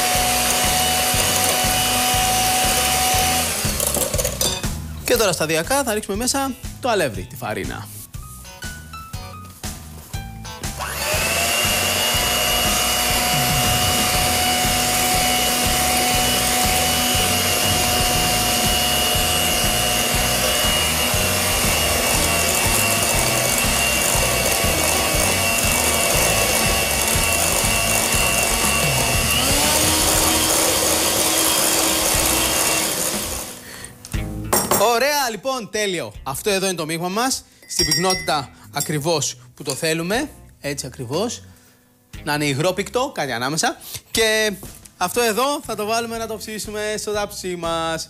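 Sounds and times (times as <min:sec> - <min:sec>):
electric hand mixer whisking batter: 0:00.0 - 0:04.4, 0:10.8 - 0:33.7.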